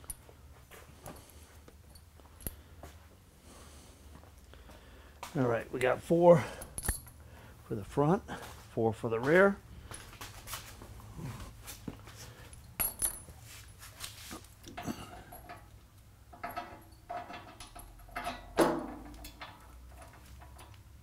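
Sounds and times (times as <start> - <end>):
metal bolts clinking: 6.4 - 7.2, 12.5 - 13.4, 14.6 - 20.9.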